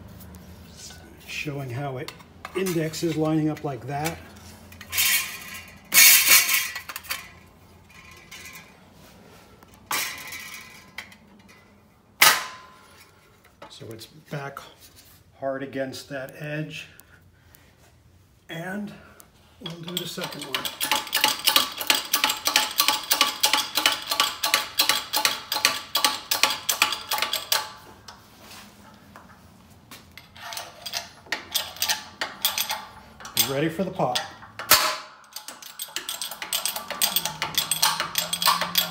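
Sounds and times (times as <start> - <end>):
sheet metal clinks and scrapes: 2.0 - 9.1, 9.9 - 13.8, 19.6 - 28.2, 30.2 - 38.9
loud metal clatter: 4.8 - 8.8, 19.6 - 27.8, 34.2 - 38.9
hydraulic press pump clicking: 20.0 - 27.7, 34.2 - 38.9.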